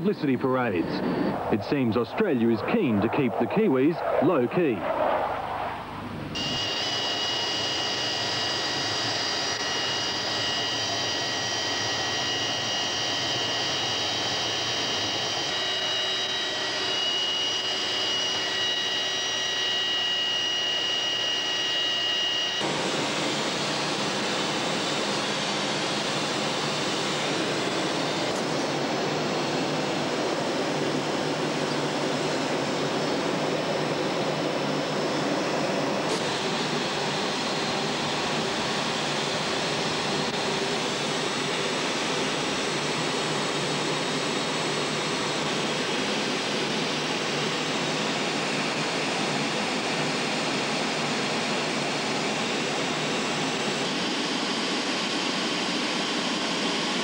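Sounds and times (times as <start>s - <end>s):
high turbine whine: 0.0s - 57.0s
jet engine rushing: 0.0s - 57.0s.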